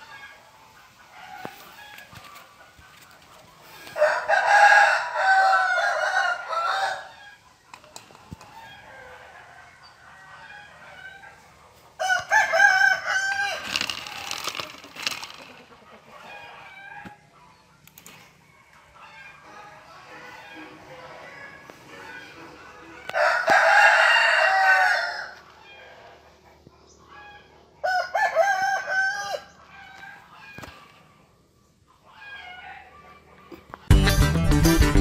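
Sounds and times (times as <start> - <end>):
rooster crowing: 3.8 - 7.4, 12.0 - 13.9, 19.0 - 26.0, 27.8 - 30.7.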